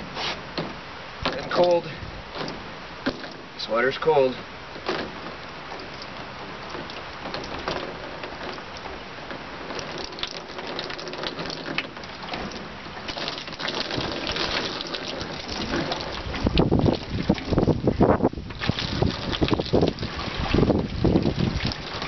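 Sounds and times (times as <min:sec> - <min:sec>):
water spattering on plastic: 0:05.8 - 0:22.0
water pouring into funnel: 0:13.1 - 0:17.7, 0:18.5 - 0:22.0.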